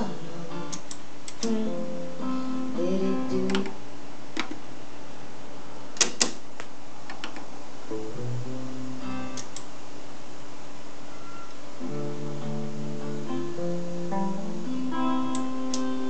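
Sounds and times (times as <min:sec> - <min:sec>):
acoustic guitar music from cassette: 0:00.0 - 0:03.7, 0:11.8 - 0:16.0
sharp clicks: 0:00.7 - 0:01.6, 0:09.4 - 0:09.7.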